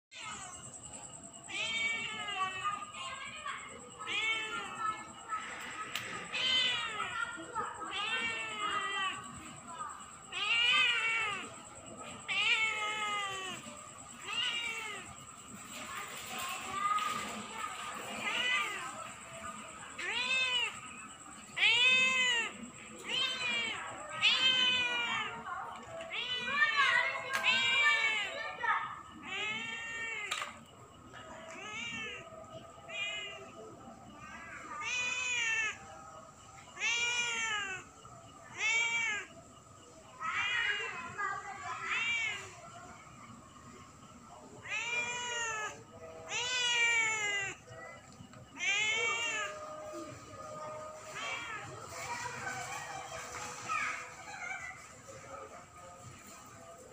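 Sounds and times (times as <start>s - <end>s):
cat meowing: 1.5s - 2.6s, 4.0s - 5.1s, 5.9s - 9.4s, 10.3s - 11.6s, 12.2s - 15.2s, 18.2s - 28.4s, 29.2s - 30.6s, 31.4s - 33.6s, 34.6s - 35.9s, 36.7s - 37.9s, 38.5s - 39.4s, 41.8s - 42.6s, 44.6s - 47.9s, 48.5s - 50.1s.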